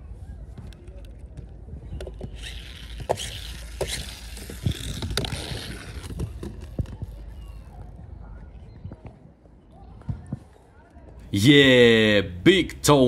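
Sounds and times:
plastic tyres hissing on ramp: 2.4 - 6.8.

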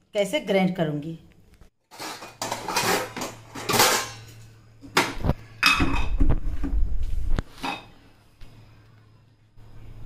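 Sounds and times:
kitchen utensils clattering: 1.9 - 6.3, 7.6 - 8.0.

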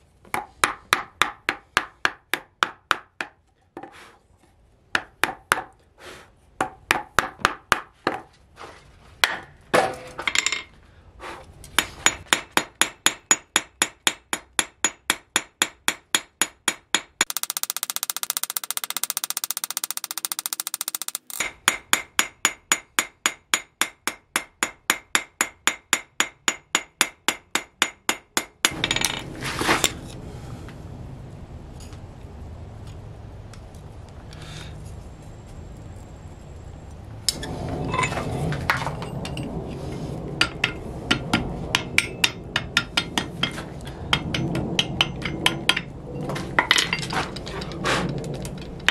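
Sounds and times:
hammer striking hot steel on anvil: 11.8 - 29.2, 40.4 - 45.9.

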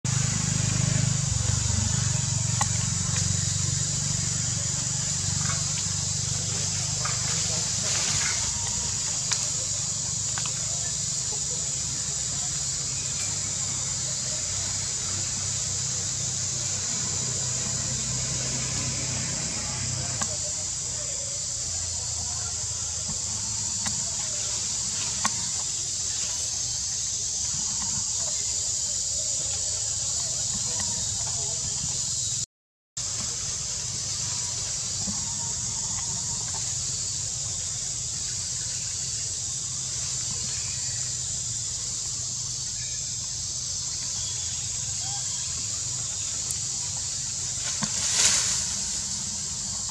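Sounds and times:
motor engine droning: 0.1 - 28.6, 33.0 - 41.0, 41.7 - 49.9
cicadas buzzing: 0.1 - 32.4, 33.0 - 49.9
high hiss: 0.1 - 32.4, 33.0 - 49.9
faint chirp: 33.2 - 49.9.

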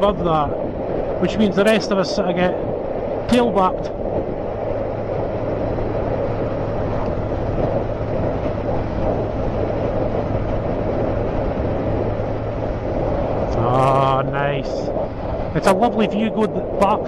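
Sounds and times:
road noise: 0.0 - 17.0
wind noise: 0.0 - 17.0
motorcycle engine cruising: 4.0 - 15.8.

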